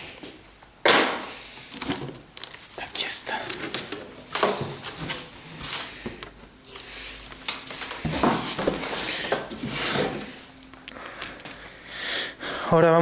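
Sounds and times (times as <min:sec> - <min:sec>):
cardboard box rustling and scraping: 0:04.6 - 0:10.4.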